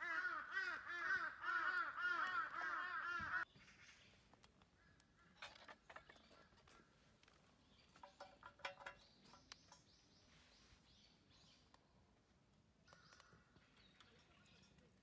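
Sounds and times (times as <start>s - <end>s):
light metallic clinks: 7.9s - 9.9s
faint bird chirps: 12.8s - 15.0s.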